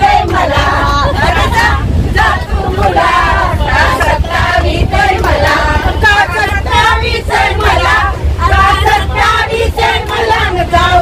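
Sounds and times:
people clapping: 0.0s - 8.0s
women singing together: 0.0s - 11.0s.

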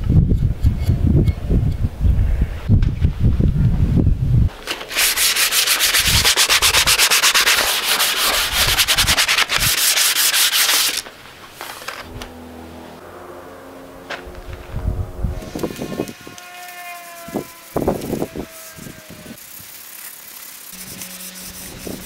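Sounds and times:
cloth scrubbing wooden handle: 4.9s - 11.0s.

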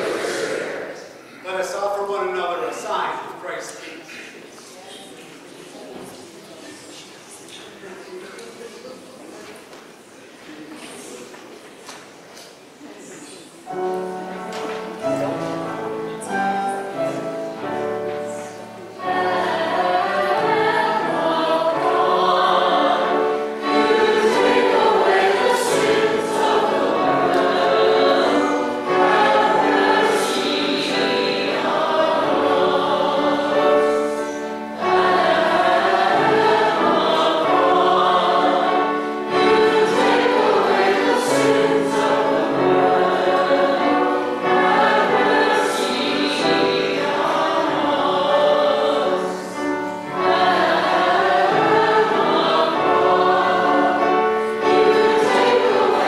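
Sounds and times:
voices singing a hymn: 0.0s - 4.0s, 13.1s - 56.0s
instrumental accompaniment held notes: 13.7s - 56.0s.

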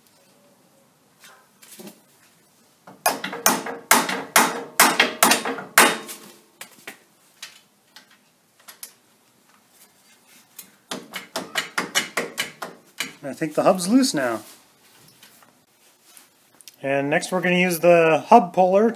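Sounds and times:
hammer striking metal: 3.0s - 6.2s.

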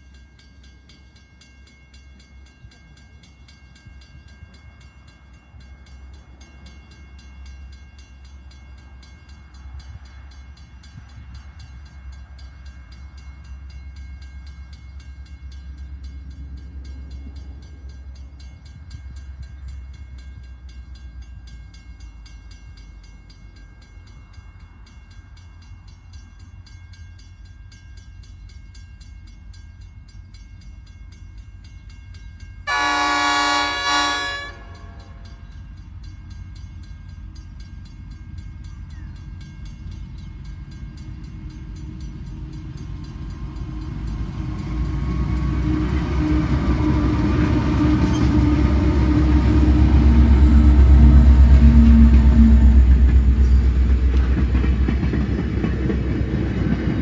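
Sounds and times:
diesel freight train rumble: 0.0s - 57.0s
locomotive horn blast: 32.7s - 35.2s, 45.3s - 53.0s.

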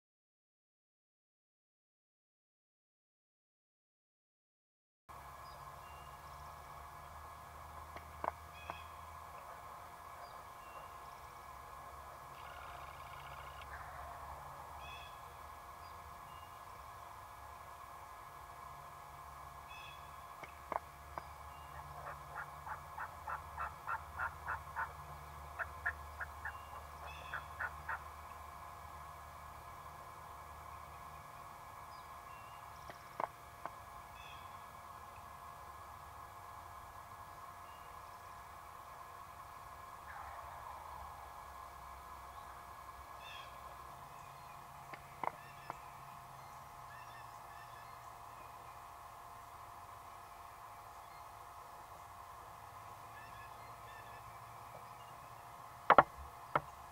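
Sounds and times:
faint steady hum: 5.1s - 56.9s
turkey yelping: 21.7s - 24.9s, 25.6s - 28.0s, 53.2s - 54.2s
turkey clucks: 21.7s - 25.0s, 25.6s - 28.1s.

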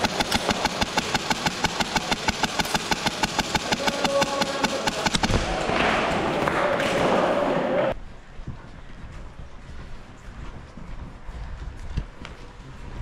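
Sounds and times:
airsoft rifle full-auto burst: 0.0s - 5.6s.

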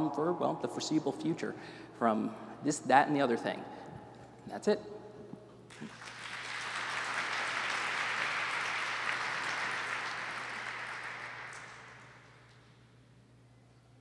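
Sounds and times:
audience applauding: 5.7s - 12.6s.

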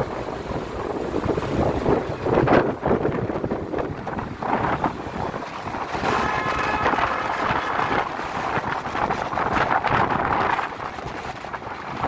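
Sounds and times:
wind buffeting microphone: 0.0s - 12.0s
road traffic: 3.1s - 12.0s.

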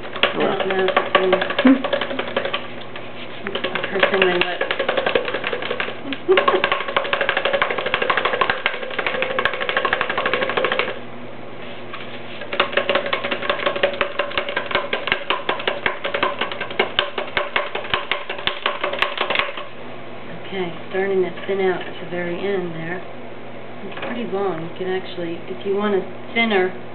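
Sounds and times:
clay rattling inside cardboard tube: 0.0s - 11.0s, 12.3s - 19.7s.

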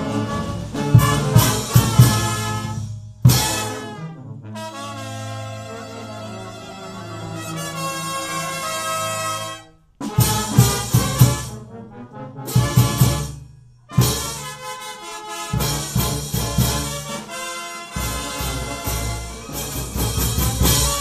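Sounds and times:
snare drum: 0.0s - 4.0s, 10.0s - 11.6s, 12.5s - 14.8s, 15.5s - 21.0s
brass band playing: 0.0s - 21.0s
bass drum: 0.7s - 3.8s, 10.0s - 11.5s, 12.6s - 13.4s, 18.0s - 21.0s.

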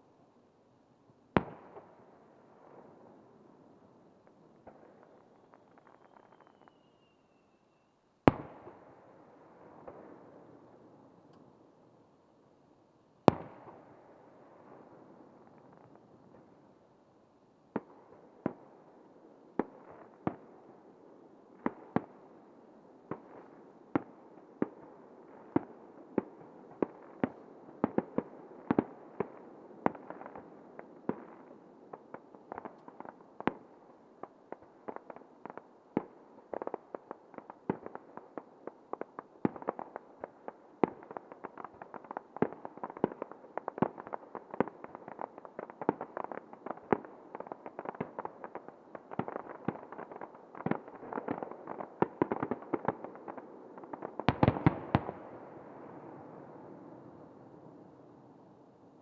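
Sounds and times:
firework pops and crackles: 4.6s - 7.5s, 25.4s - 55.3s.

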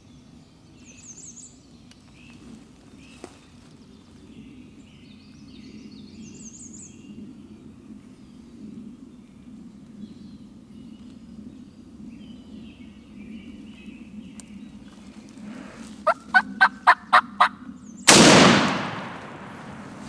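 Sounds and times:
turkey gobbling: 16.0s - 17.6s
shotgun shot: 18.1s - 20.0s.

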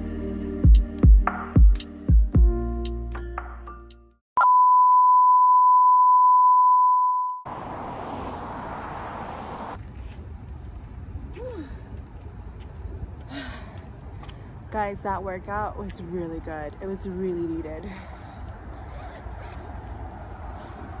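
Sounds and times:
steady electronic beep: 4.4s - 7.4s.

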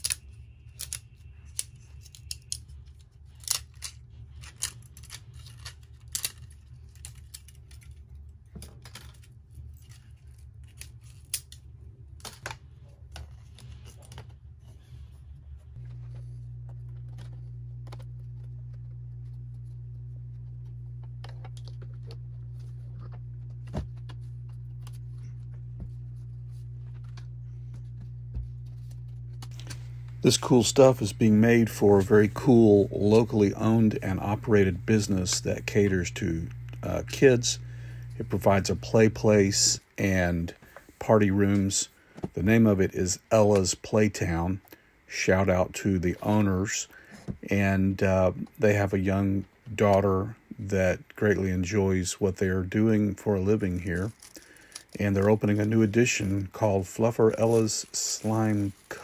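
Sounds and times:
plastic parts clicking and rattling: 0.0s - 14.5s, 53.7s - 56.6s
steady low hum: 0.0s - 59.0s.

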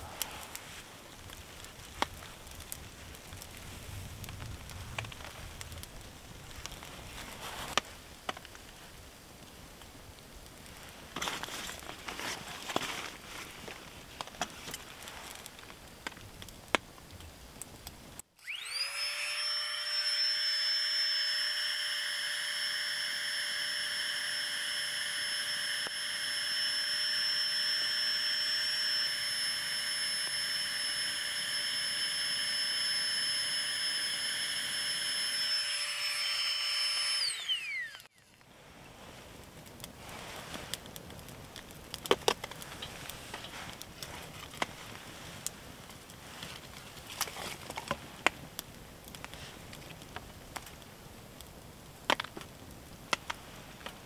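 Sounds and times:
campfire crackles: 0.0s - 18.7s, 20.2s - 54.0s
battery blower whining: 18.4s - 38.2s.

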